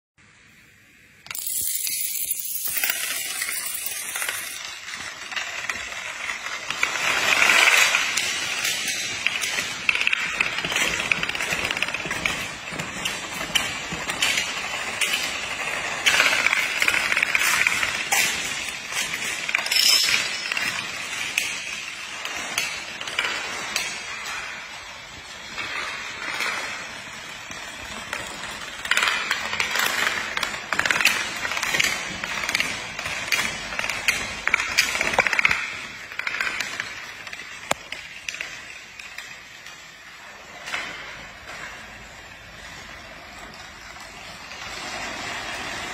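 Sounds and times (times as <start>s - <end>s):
pieces toppling in chain reaction: 1.3s - 8.6s.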